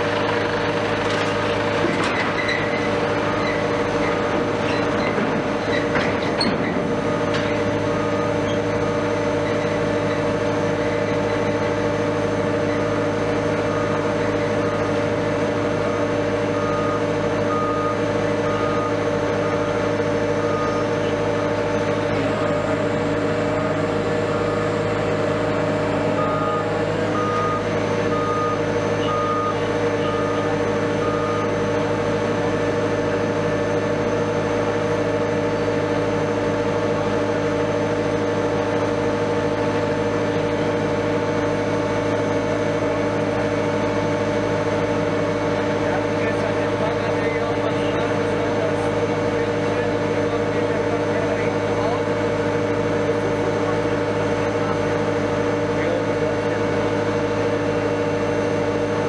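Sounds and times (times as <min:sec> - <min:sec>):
diesel engine droning: 0:00.0 - 0:59.0
reversing alarm beeping: 0:06.4 - 0:35.8.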